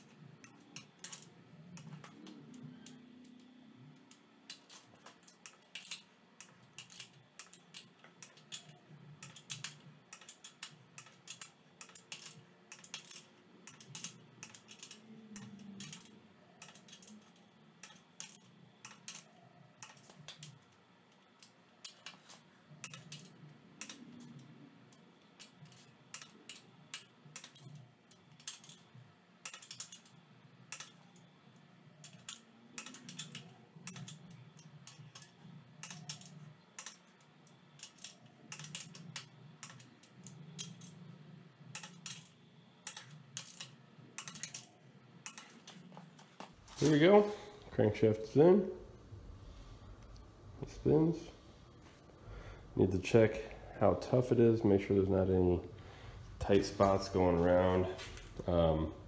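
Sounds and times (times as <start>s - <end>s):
torque wrench clicking: 4.0s - 20.6s, 32.0s - 37.0s, 41.7s - 43.6s.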